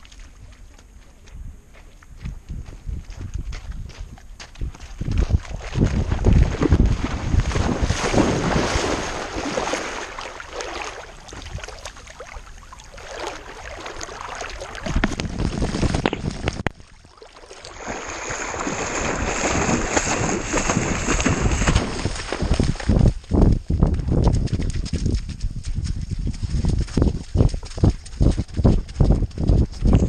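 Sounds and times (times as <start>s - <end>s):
water splashing around swimming dog: 4.8s - 23.2s.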